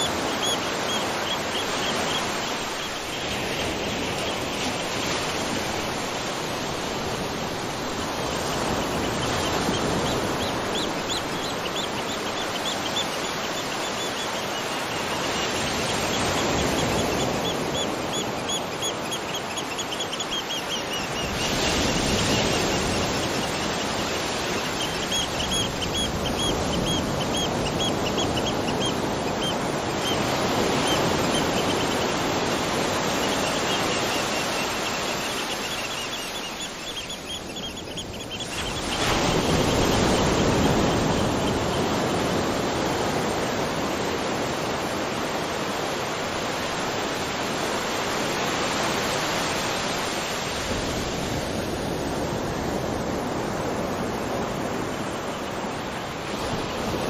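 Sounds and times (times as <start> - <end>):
rain and waterfall rushing: 0.0 - 8.3.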